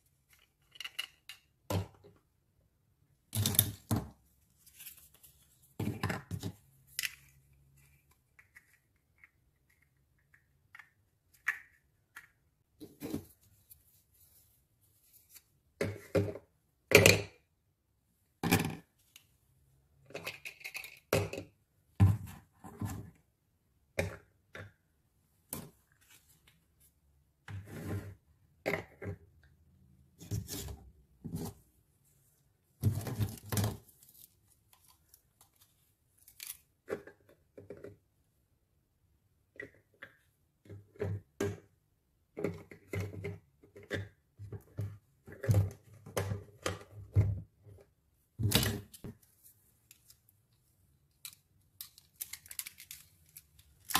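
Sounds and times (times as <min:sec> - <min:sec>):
plastic toys clicking and scraping: 0:00.1 - 0:01.6, 0:20.1 - 0:21.6, 0:51.0 - 0:53.9.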